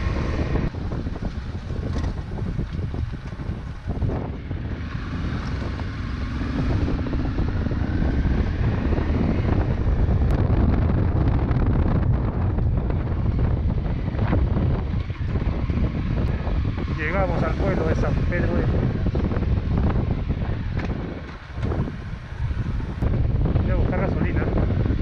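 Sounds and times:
motorcycle engine running: 0:00.0 - 0:25.0
wind buffeting microphone: 0:00.0 - 0:25.0.

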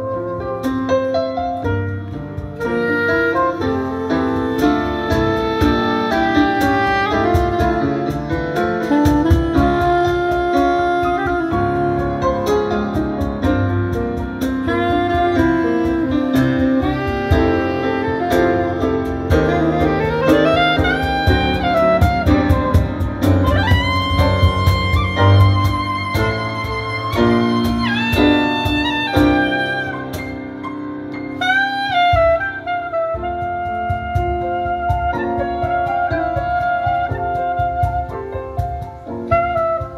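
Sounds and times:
cajon beat: 0:00.0 - 0:39.9
grand piano chords: 0:00.0 - 0:39.9
soprano saxophone melody: 0:00.0 - 0:39.9.

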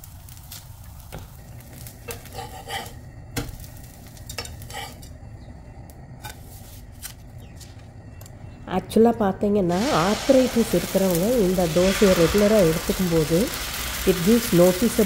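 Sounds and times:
low sizzle from pan: 0:00.0 - 0:07.5, 0:09.7 - 0:15.0
metal spatula scraping a pan: 0:02.0 - 0:03.0, 0:04.3 - 0:05.1.

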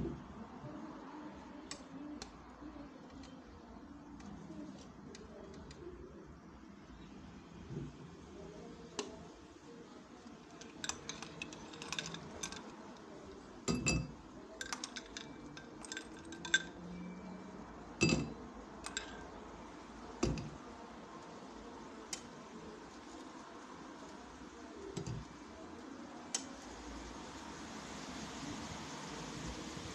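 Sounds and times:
spoon clinking against glass: 0:10.6 - 0:12.7, 0:13.7 - 0:17.1, 0:18.0 - 0:19.3.

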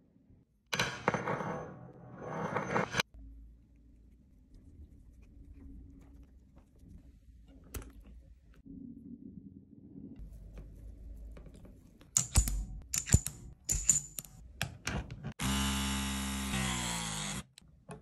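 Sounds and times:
metallic clicks and clacks: 0:12.1 - 0:14.4
hydraulic crimping tool motor: 0:15.4 - 0:17.6.

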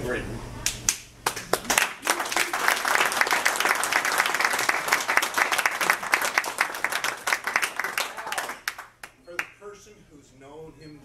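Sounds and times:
audience clapping: 0:00.9 - 0:09.6.

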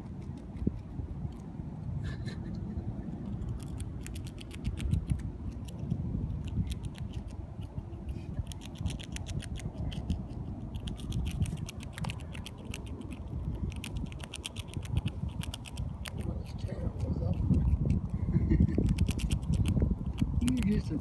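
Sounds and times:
squirrel chewing food: 0:00.0 - 0:02.0, 0:02.6 - 0:21.0.

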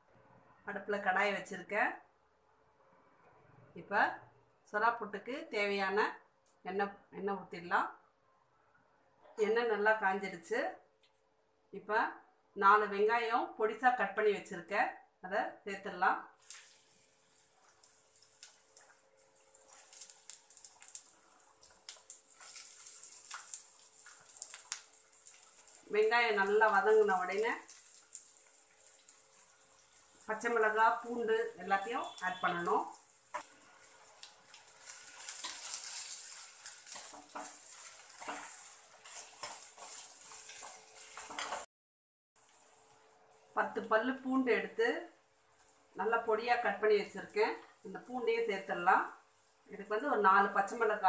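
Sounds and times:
onions sizzling in hot oil: 0:16.4 - 0:41.7, 0:42.4 - 0:51.0
ladle scraping and knocking pan: 0:36.8 - 0:41.6.

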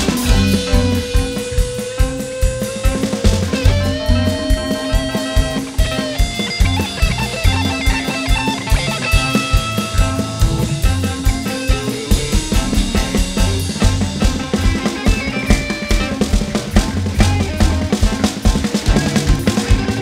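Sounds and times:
rock music with guitar and drums: 0:00.0 - 0:20.0.

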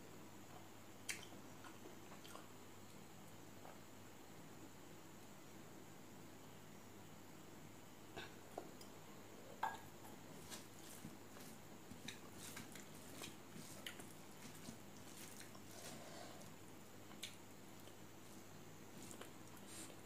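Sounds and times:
soft chewing: 0:00.4 - 0:03.0, 0:09.6 - 0:20.0.

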